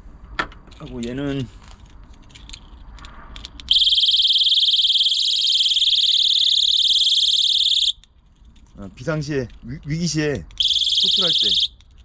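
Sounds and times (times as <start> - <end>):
alarm high-pitched electronic shriek: 3.7 - 7.9, 10.6 - 11.7.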